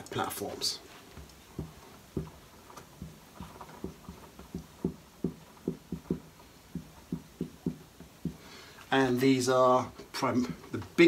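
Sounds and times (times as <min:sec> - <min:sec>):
marker writing on whiteboard: 0:01.5 - 0:08.4.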